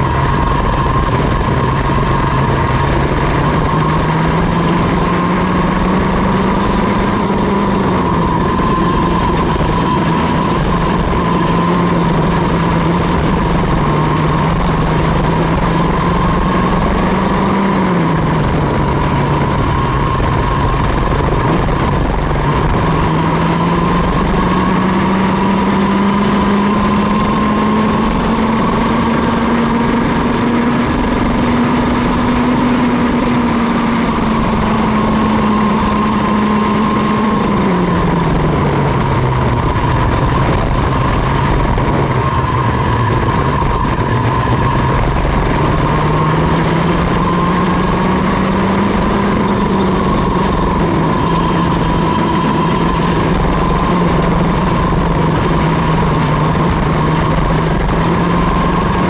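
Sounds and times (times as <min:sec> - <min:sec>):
kart engine running hard: 0:00.0 - 0:59.0.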